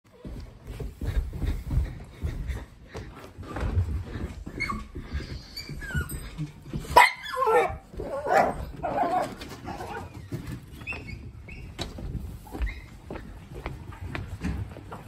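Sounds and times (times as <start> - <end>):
dog yipping and barking: 7.0 - 10.0.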